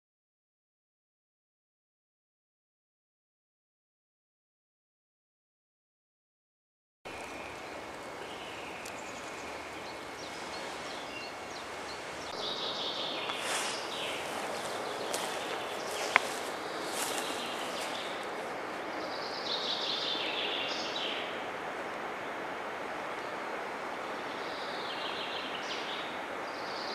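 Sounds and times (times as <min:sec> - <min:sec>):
background hiss: 0:07.1 - 0:26.9
small birds chirping: 0:07.1 - 0:26.9.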